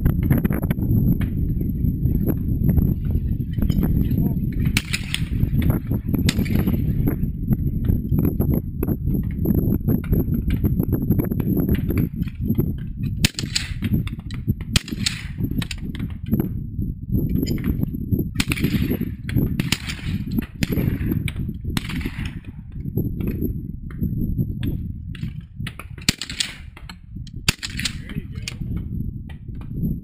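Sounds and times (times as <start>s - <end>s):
low rumble: 0.0s - 30.0s
shotgun shots: 4.6s - 5.6s, 6.2s - 7.0s, 13.2s - 13.9s, 14.7s - 15.8s, 18.4s - 21.2s, 21.8s - 22.5s, 26.0s - 26.8s, 27.4s - 28.6s.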